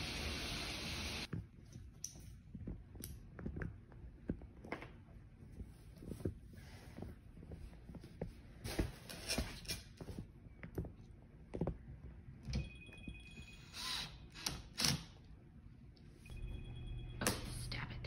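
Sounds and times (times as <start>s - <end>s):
drill driving screws into wood: 13.7s - 15.2s.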